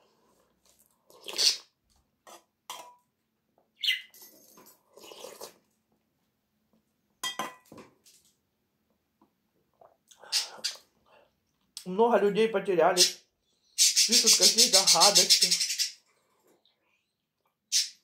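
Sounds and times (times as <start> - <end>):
slurping sips: 0.2 - 1.7, 4.9 - 5.7
metal spoon clinking on metal bowl: 2.7 - 3.0, 7.2 - 7.7.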